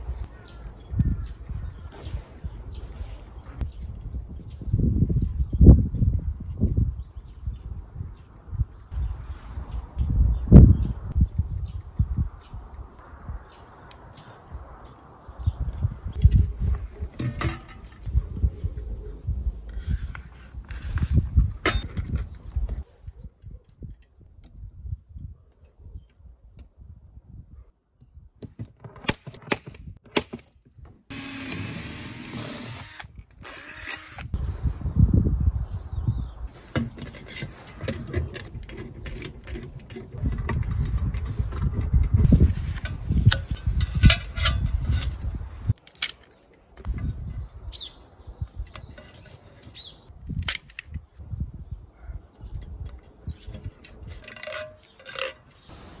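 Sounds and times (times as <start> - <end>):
cordless drill running: 31.1 - 34.3
bird chirping: 47.0 - 50.1.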